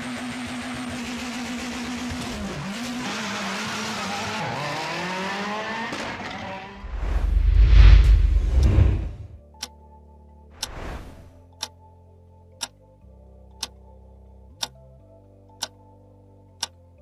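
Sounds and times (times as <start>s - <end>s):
car engine accelerating: 0.0s - 9.4s
loud low rumble: 6.8s - 9.4s.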